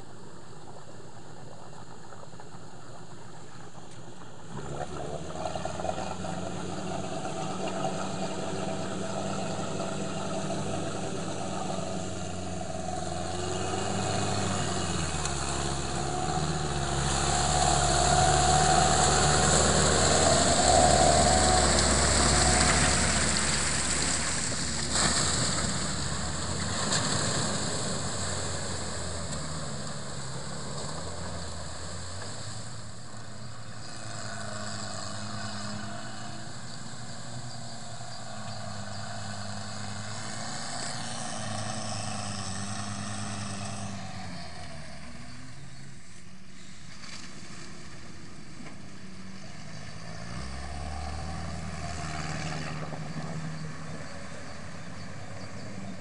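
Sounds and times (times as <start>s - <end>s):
vehicle engine running: 0.0s - 56.0s
churning water: 0.1s - 45.0s.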